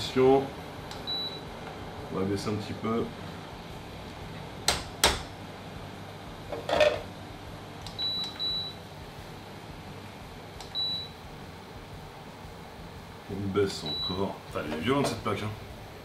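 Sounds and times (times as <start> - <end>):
electric hob short beeps: 1.1 - 1.4, 8.0 - 8.8, 10.7 - 11.2, 13.8 - 14.3.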